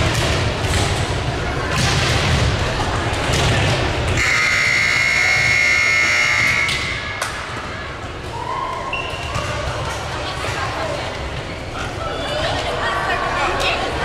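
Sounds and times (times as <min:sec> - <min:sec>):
scoreboard buzzer tone: 0:04.2 - 0:06.8.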